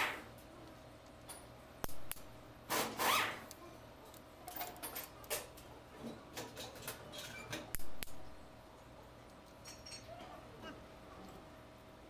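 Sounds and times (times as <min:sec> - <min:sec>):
metallic clicks and clinks: 0:04.1 - 0:05.6, 0:09.3 - 0:10.2.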